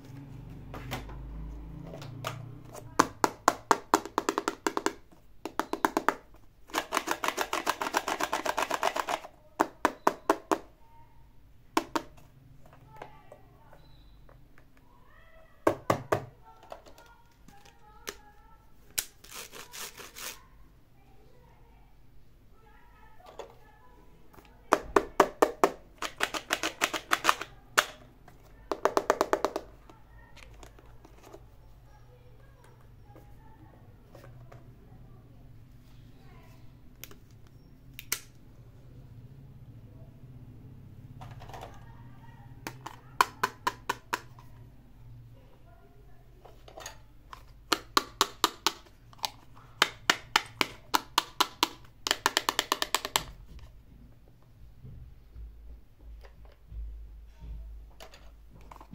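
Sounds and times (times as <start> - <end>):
plastic toy pieces clicking: 3.9 - 10.6, 25.2 - 28.0, 46.8 - 53.4.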